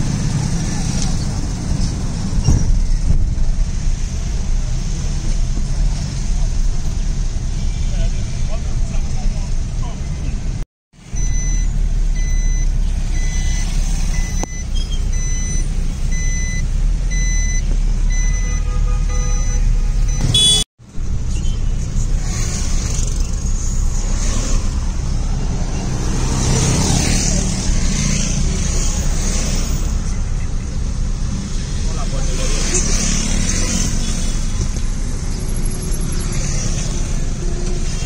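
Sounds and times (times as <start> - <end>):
car cabin road noise: 0.0 - 38.0
high electronic beeps: 11.1 - 18.5, 19.4 - 21.6.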